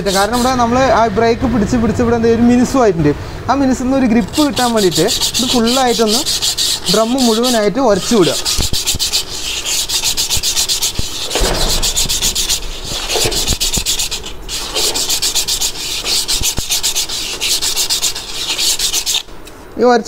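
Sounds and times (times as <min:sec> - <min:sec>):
emery paper rubbing metal drum: 0:00.0 - 0:00.7, 0:04.2 - 0:19.4.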